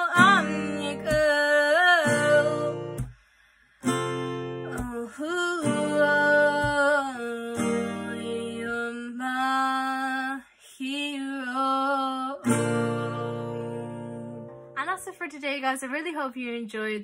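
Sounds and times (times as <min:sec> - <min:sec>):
woman singing: 0:00.0 - 0:03.1, 0:04.6 - 0:14.5
strummed acoustic guitar: 0:00.0 - 0:03.2, 0:03.8 - 0:09.1, 0:12.4 - 0:15.1.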